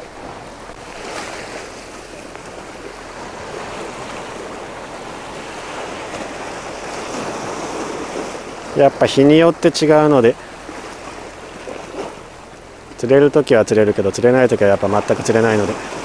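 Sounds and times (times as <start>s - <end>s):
waves breaking against rocks: 0.0s - 16.0s.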